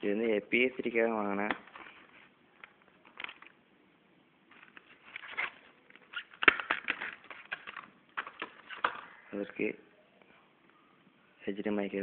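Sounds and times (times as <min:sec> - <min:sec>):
plastic packaging crinkling: 0:01.5 - 0:03.6, 0:04.5 - 0:09.1.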